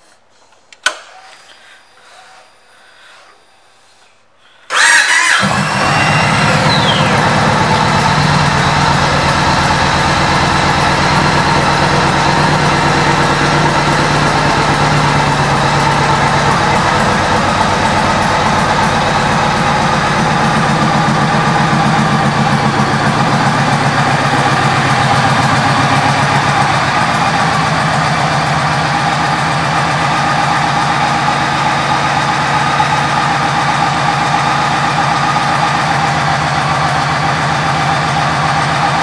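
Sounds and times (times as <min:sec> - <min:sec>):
motorcycle engine idling: 0:04.7 - 0:39.0.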